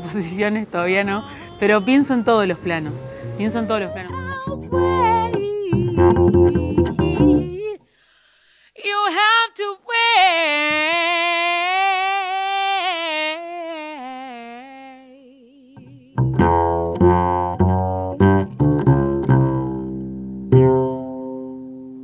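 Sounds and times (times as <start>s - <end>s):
woman singing long note: 0.0s - 7.8s, 9.3s - 16.2s
double bass plucked notes: 2.5s - 7.7s, 15.8s - 22.0s.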